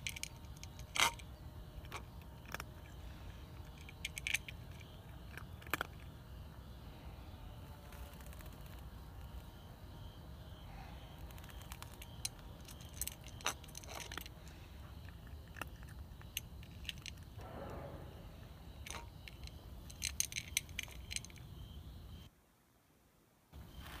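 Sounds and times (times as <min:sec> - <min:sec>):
cats chewing crunchy food: 0:11.0 - 0:17.4.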